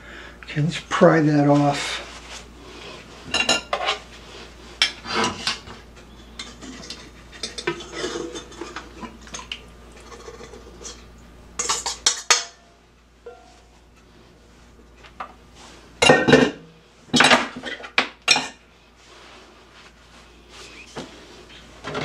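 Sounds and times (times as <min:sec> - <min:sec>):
metal bowl clanking against pan: 0:11.6 - 0:13.7.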